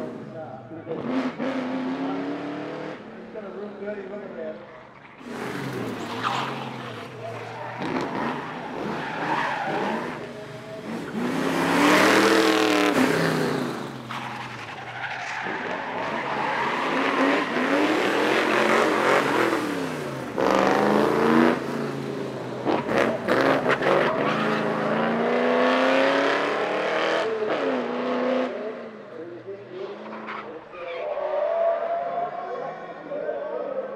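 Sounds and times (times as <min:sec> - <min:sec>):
race car engine revving: 0:00.0 - 0:03.2, 0:05.0 - 0:30.7
tyres squealing: 0:05.0 - 0:13.2.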